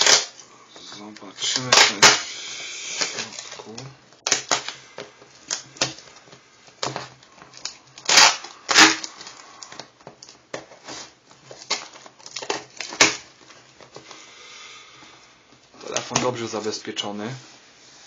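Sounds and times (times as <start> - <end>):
tape and cardboard ripping: 0.0 - 0.4, 1.4 - 4.8, 6.8 - 13.6.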